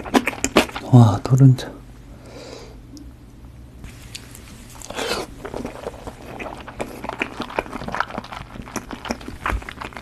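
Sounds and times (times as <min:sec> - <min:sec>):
chewing with wet crunches: 0:00.0 - 0:00.8, 0:04.2 - 0:10.0.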